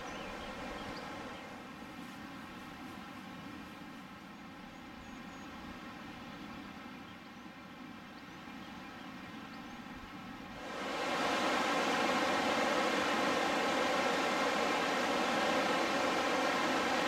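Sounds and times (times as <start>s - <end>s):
faint bird chirps: 0.0s - 1.5s
steady low hush: 10.5s - 17.0s.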